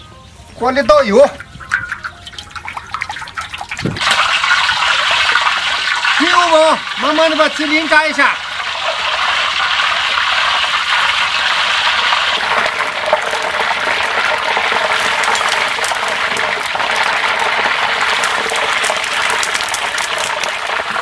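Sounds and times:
hot oil sizzling and crackling: 0.2s - 21.0s.

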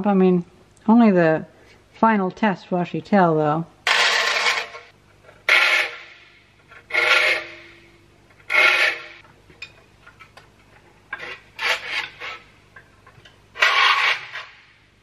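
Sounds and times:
file rasping on saw teeth: 5.5s - 6.1s, 6.8s - 7.7s, 8.5s - 9.2s, 11.2s - 12.4s, 13.6s - 14.6s.

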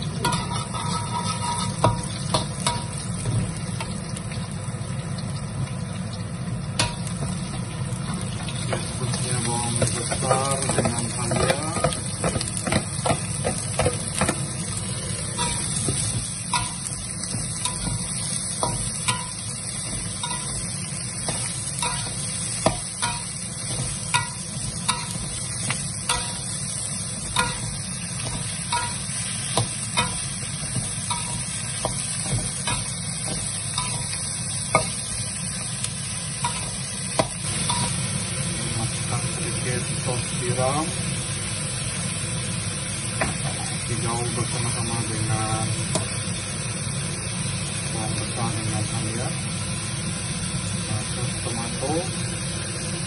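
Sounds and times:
onion sizzling in oil: 0.0s - 53.0s
metal ladle scraping a wok: 0.2s - 2.8s.

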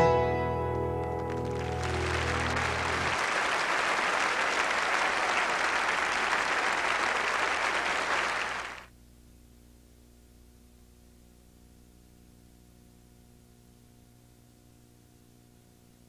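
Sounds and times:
low music notes: 0.0s - 3.2s
audience applauding: 1.0s - 8.9s.

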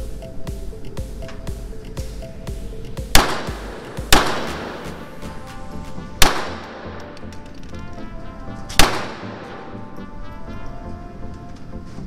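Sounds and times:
background music: 0.0s - 12.0s
pistol shot echoing: 3.1s - 5.0s, 6.2s - 7.1s, 8.7s - 9.7s.

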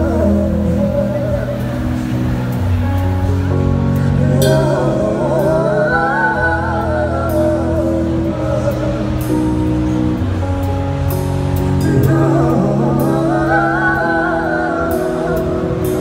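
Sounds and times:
keyboard and bass chords: 0.0s - 16.0s
woman singing: 4.2s - 9.3s, 11.8s - 16.0s.

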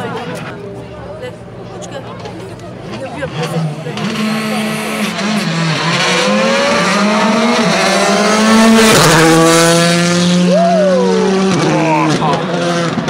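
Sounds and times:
rally car passing at full throttle: 0.0s - 13.0s.

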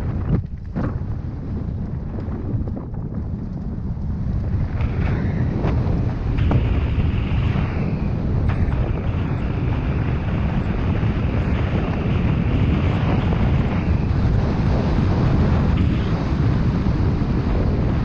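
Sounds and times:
bike tyres rolling over dirt: 0.0s - 18.0s
wind rushing over microphone: 0.0s - 18.0s.

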